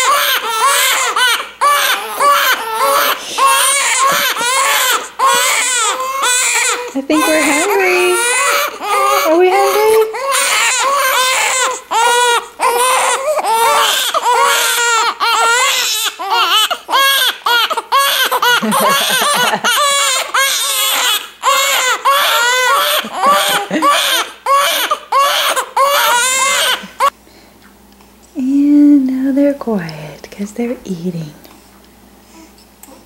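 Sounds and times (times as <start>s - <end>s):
newborn babies crying: 0.0s - 27.2s
baby gasping for breath: 3.1s - 3.8s.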